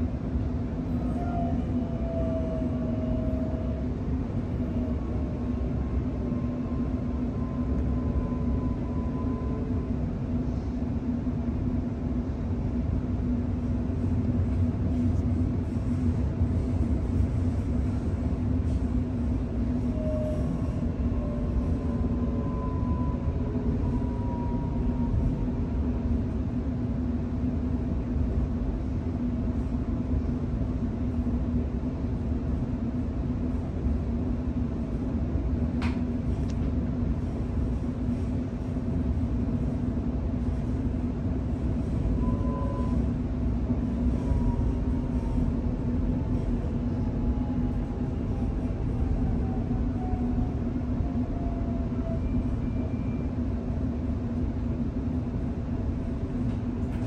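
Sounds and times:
constant low hum: 0:00.0 - 0:57.0
train wheels rumbling on rails: 0:00.0 - 0:57.0.

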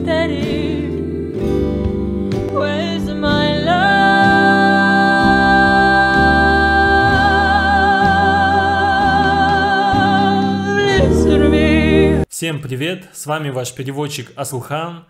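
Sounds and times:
low instrumental accompaniment: 0:00.0 - 0:12.3
woman singing a high held note: 0:02.6 - 0:12.1.

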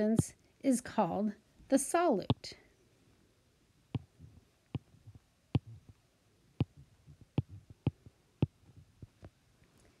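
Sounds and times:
soft low knocks: 0:04.0 - 0:06.0.

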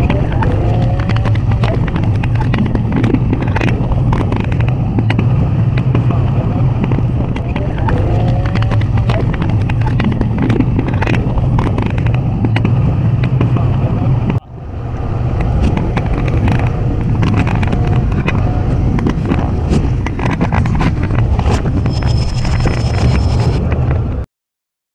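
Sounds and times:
roller coaster lift chain rumble: 0:00.0 - 0:24.2
thin high tone: 0:21.8 - 0:23.6.

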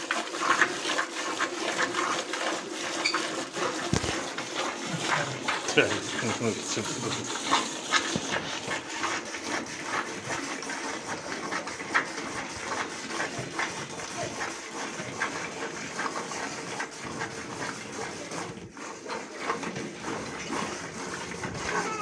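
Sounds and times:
milk squirting into a plastic bucket: 0:00.0 - 0:22.0.

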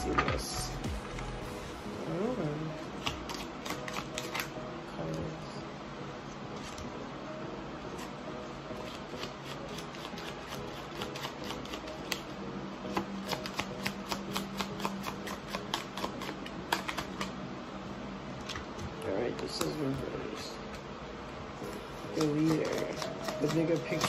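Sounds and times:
cards being shuffled: 0:02.9 - 0:04.5, 0:06.5 - 0:06.9, 0:08.8 - 0:12.3, 0:12.9 - 0:17.4, 0:22.1 - 0:24.0.

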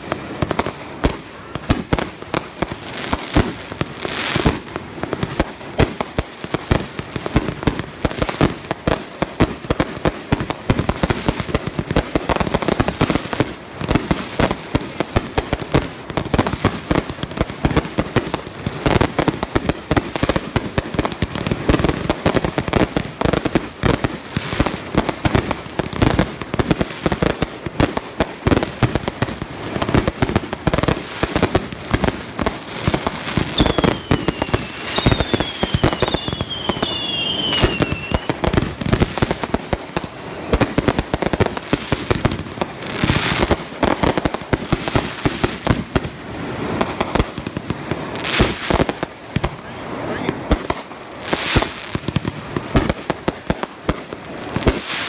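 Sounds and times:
fireworks bangs and crackle: 0:00.0 - 0:55.0
fireworks falling whistles: 0:33.0 - 0:42.1.

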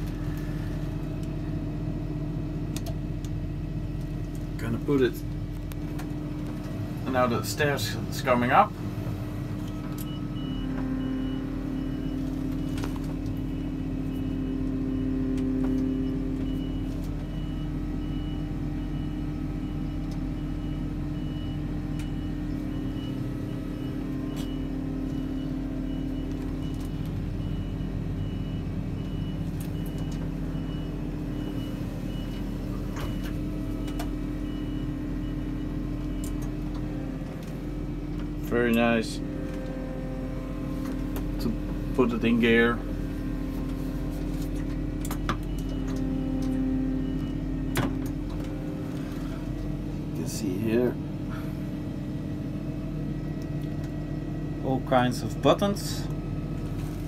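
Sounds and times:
high warning beeper: 0:09.6 - 0:12.8.

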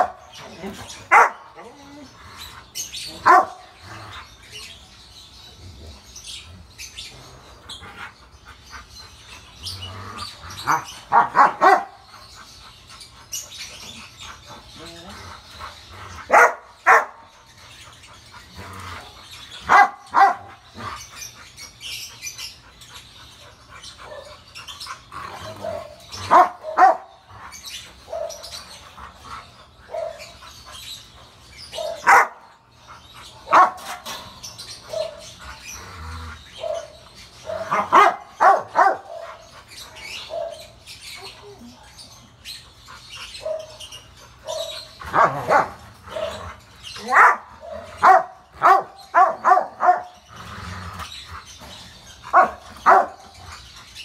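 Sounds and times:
dog barking: 0:01.1 - 0:01.5, 0:03.2 - 0:03.6, 0:10.7 - 0:12.0, 0:16.3 - 0:17.2, 0:19.6 - 0:20.5, 0:25.5 - 0:27.1, 0:31.8 - 0:32.4, 0:33.5 - 0:34.0, 0:37.5 - 0:39.2, 0:44.5 - 0:46.4, 0:47.0 - 0:50.2, 0:52.3 - 0:53.2.

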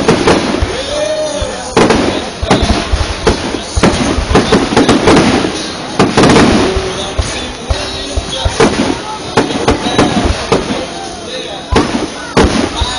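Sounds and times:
fireworks bangs and pops: 0:00.0 - 0:11.0, 0:11.7 - 0:12.9.

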